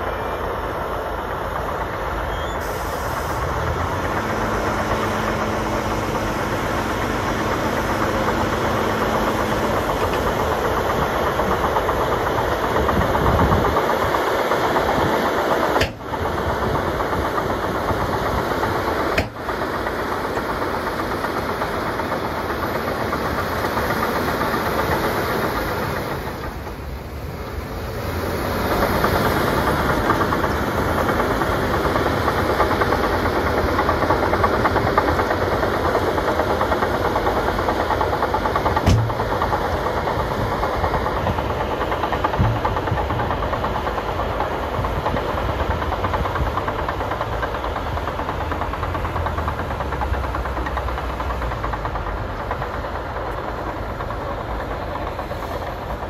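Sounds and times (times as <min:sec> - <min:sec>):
bulldozer diesel engine: 0:00.0 - 0:56.0
steel tracks clattering: 0:00.0 - 0:56.0
sharp knock: 0:15.8 - 0:16.1, 0:38.8 - 0:39.4.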